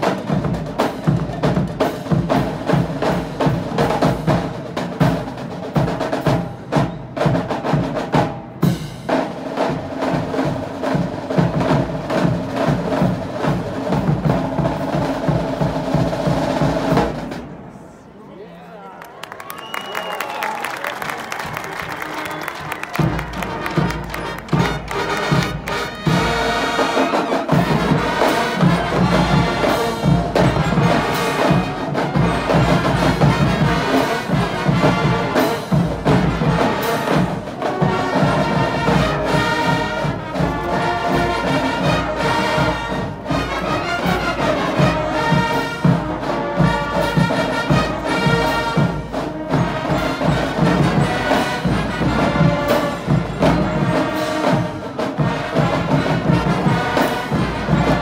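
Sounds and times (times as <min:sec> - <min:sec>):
drum and percussion beat: 0:00.0 - 0:17.4, 0:21.0 - 0:58.0
brass instruments playing tune: 0:21.0 - 0:58.0.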